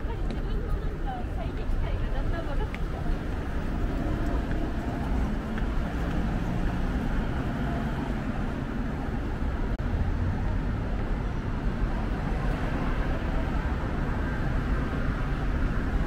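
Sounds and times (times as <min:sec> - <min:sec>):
murmur of passing crowd: 0:00.0 - 0:16.0
road traffic: 0:00.0 - 0:16.0.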